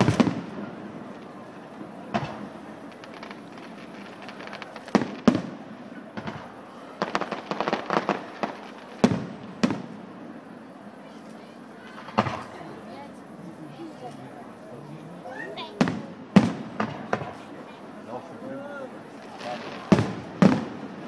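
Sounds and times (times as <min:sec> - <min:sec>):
crackling firework pops: 0:00.0 - 0:10.0, 0:12.0 - 0:12.6, 0:15.8 - 0:17.5, 0:19.1 - 0:21.0
firework shells bursting: 0:02.1 - 0:10.0.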